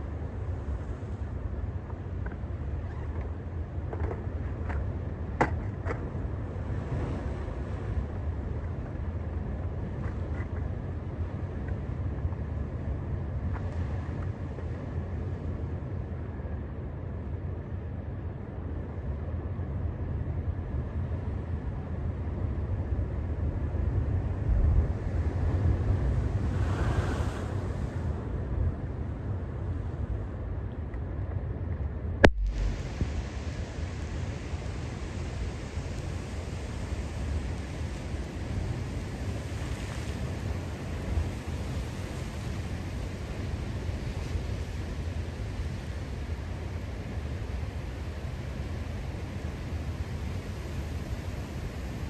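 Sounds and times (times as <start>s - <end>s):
wind rumbling on microphone: 0.0s - 52.0s
ocean waves breaking: 5.1s - 10.3s, 23.4s - 30.2s, 32.3s - 46.4s.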